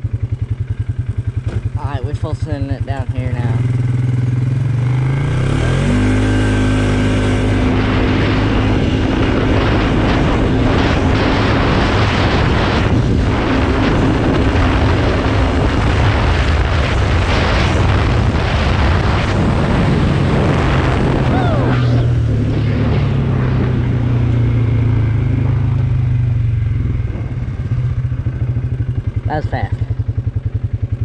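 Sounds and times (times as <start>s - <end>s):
atv engine accelerating: 0.0s - 31.0s
loud rushing noise: 5.3s - 29.1s.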